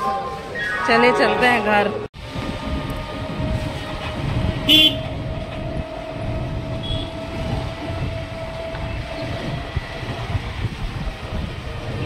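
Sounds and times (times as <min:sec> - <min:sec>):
road and motor rumble: 0:00.0 - 0:12.0
vehicle horn toot: 0:04.6 - 0:05.1, 0:06.8 - 0:07.1.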